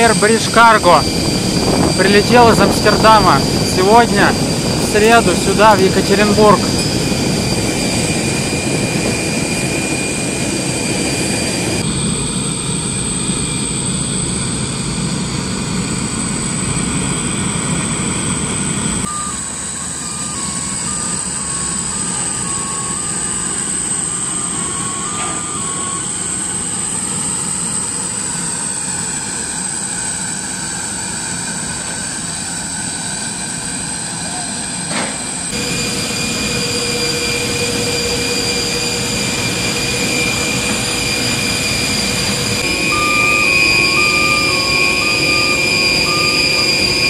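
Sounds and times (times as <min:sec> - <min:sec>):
jet engines whining: 0:00.0 - 0:47.0.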